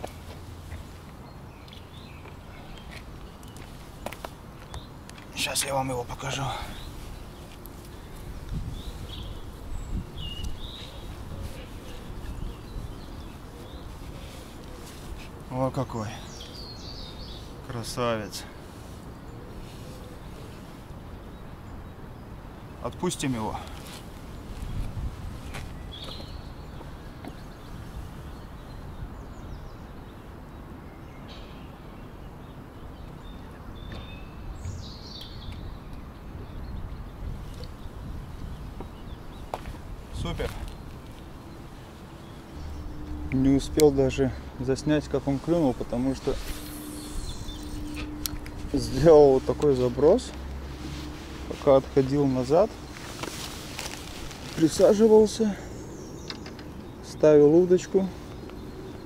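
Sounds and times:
small birds chirping: 0.0 - 59.0
steady low rumble: 39.2 - 54.6.

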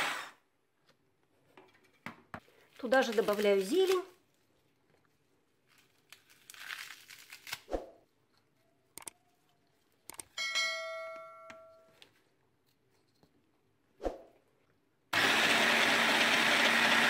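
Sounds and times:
leaves rustling torn by hand: 2.8 - 4.4, 5.6 - 8.0
bell-like ding: 10.4 - 11.9.

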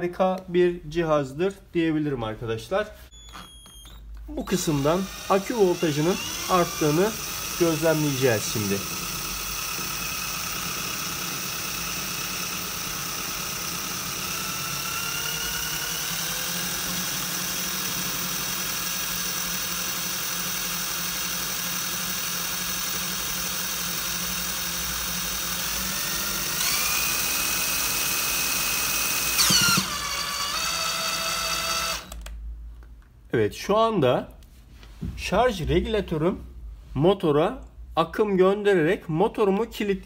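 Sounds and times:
motor whining: 3.1 - 32.4.

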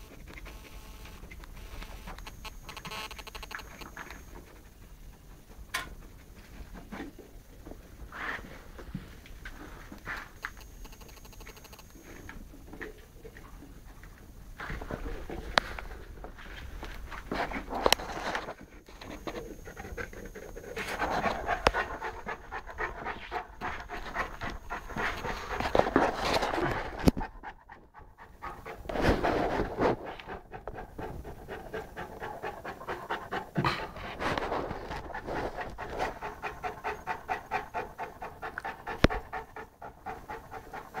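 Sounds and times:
puppy panting: 17.2 - 41.0.

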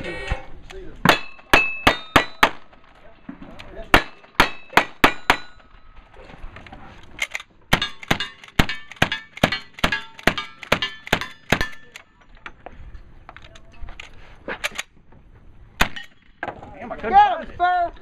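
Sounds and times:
steel targets ringing: 1.1 - 2.6.

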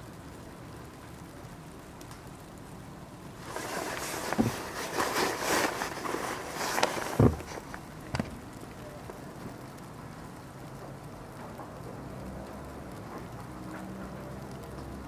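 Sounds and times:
outdoor air hiss: 0.0 - 15.0.

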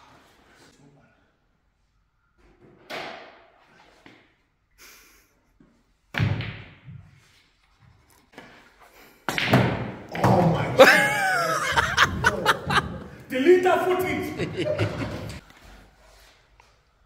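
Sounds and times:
pool balls clicking: 9.3 - 15.4.

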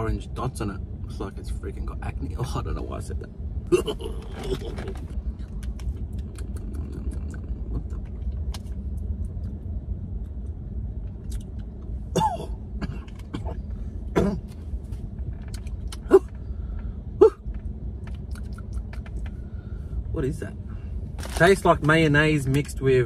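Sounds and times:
low rumble: 0.0 - 23.0
man coughing and clearing throat: 3.7 - 5.0, 12.1 - 14.5
chewing clicks: 5.4 - 8.6, 18.1 - 19.3.

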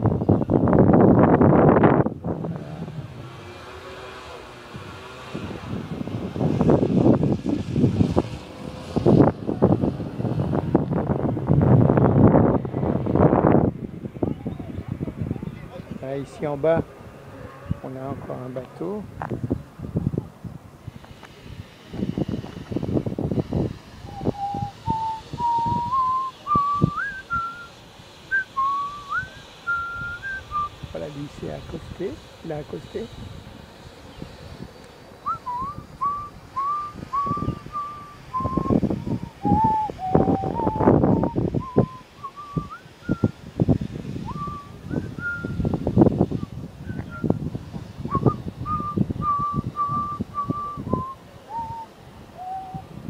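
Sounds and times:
low wind buffeting on microphone: 0.0 - 53.0
person whistling a slow tune: 24.1 - 27.7, 28.3 - 30.7, 35.2 - 43.3, 44.3 - 45.7, 46.8 - 47.4, 48.1 - 52.9.

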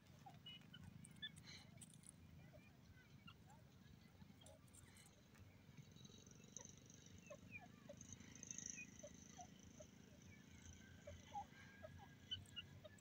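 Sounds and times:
soft short bird chirps: 0.2 - 3.5.

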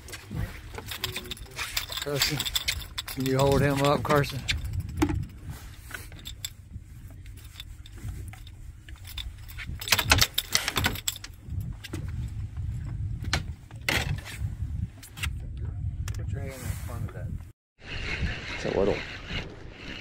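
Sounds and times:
fishing tackle metallic clinks: 0.7 - 11.7.

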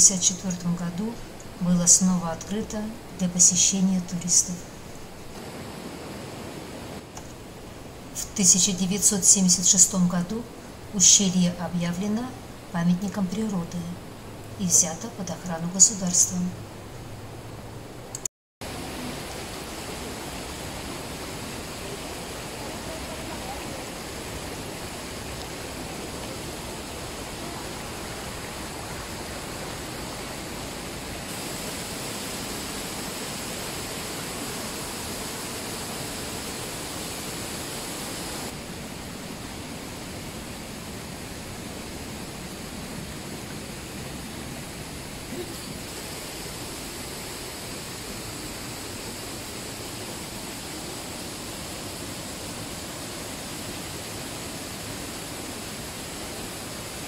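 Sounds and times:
stream and waterfalls rushing: 0.0 - 57.0.

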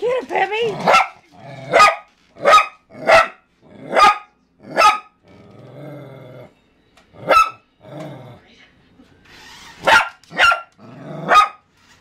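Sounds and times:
dog growling: 0.6 - 1.9, 2.9 - 4.0, 4.6 - 8.5, 10.8 - 11.4
small dog barking: 0.8 - 5.1, 7.3 - 7.6, 9.8 - 10.7, 11.3 - 11.6.

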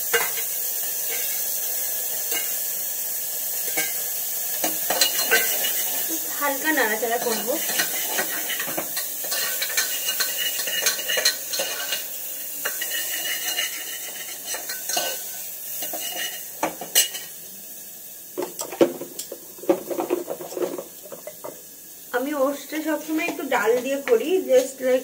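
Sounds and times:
food sizzling in butter: 0.0 - 25.0
metal spoon scraping a pot: 4.9 - 6.0, 7.2 - 17.3.

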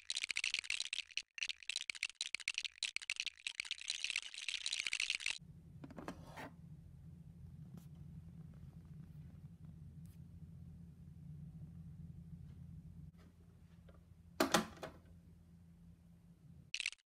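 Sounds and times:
low steady hum: 5.4 - 16.7.

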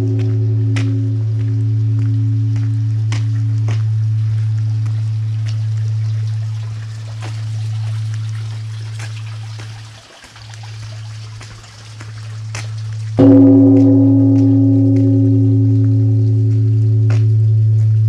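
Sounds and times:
large bell humming low: 0.0 - 8.9, 13.2 - 18.0
bell struck with wooden striker: 13.2 - 16.0.

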